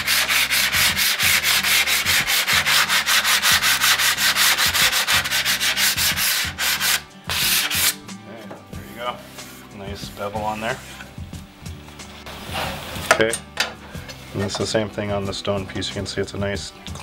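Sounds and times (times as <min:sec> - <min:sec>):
hand pad rasping on stone edge: 0:00.0 - 0:08.0.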